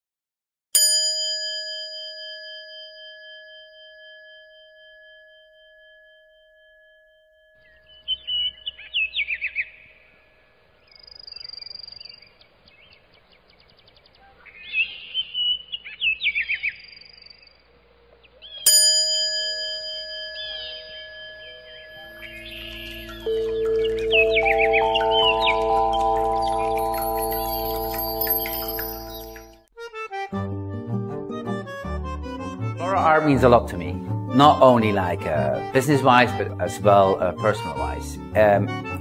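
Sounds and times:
bell ringing: 0.8 - 7.7, 18.7 - 29.7
birds chirping: 7.6 - 18.7, 20.0 - 29.7.

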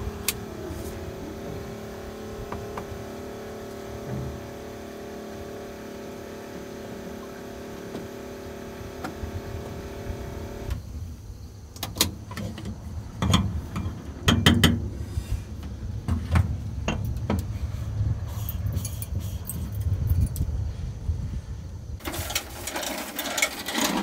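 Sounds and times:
vehicle engine running: 0.0 - 10.7
sharp knocks and clunks: 11.8 - 14.9.

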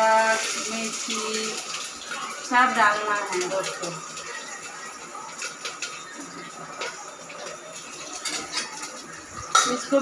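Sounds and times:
spices sizzling in oil: 0.0 - 10.0.

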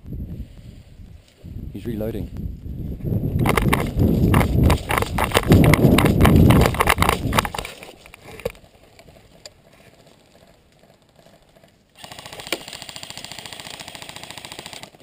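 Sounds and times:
rustling and thudding movement: 2.5 - 9.8
airsoft gun full-auto burst: 12.0 - 15.0.

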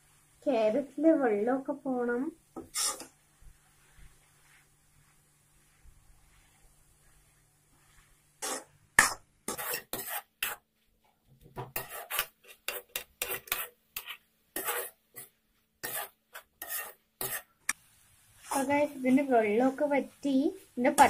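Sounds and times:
metal spoon scraping metal pan: 2.6 - 3.1, 8.4 - 8.7, 9.5 - 10.6, 11.7 - 17.5.

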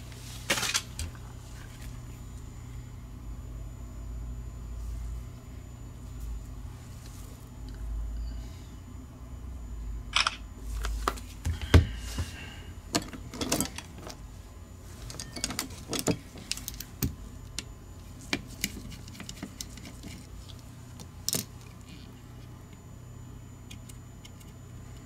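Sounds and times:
small tools clattering on a mat: 12.9 - 14.2, 15.0 - 17.1.

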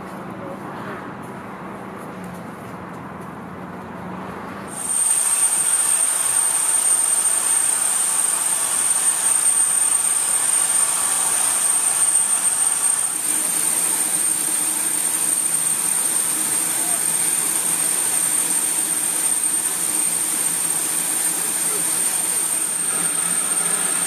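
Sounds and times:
steam locomotive hissing: 4.7 - 24.0
thin high whistle: 4.8 - 24.0.

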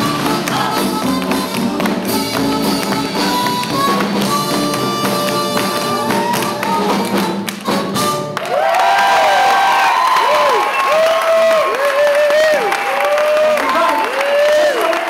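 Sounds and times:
swing big band playing: 0.0 - 8.6
audience cheering and whooping: 4.7 - 7.5, 8.4 - 15.0.

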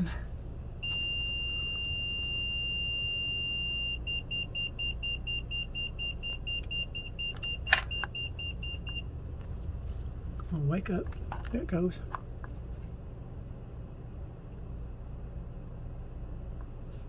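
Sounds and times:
vehicle warning chime beeping: 0.1 - 9.1.

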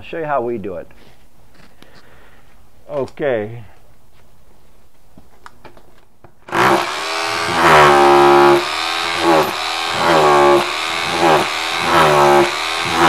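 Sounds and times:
rotary hammer chipping: 6.5 - 13.0.

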